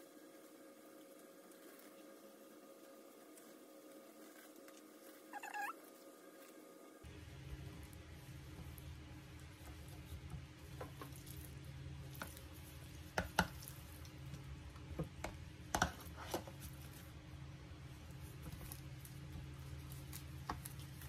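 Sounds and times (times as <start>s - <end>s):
cabbage leaves being handled: 0.0s - 21.0s
steady low hum: 5.9s - 21.0s.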